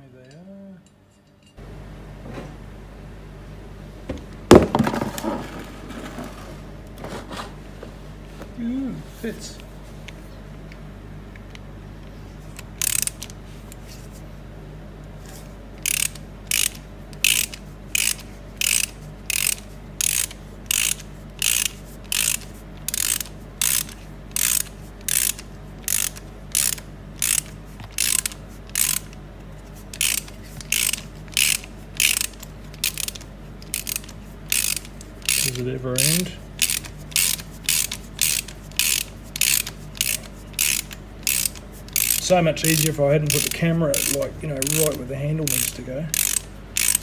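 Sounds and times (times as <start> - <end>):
socket ratchet clicking: 12.6 - 13.4, 15.8 - 29.2, 29.9 - 47.0.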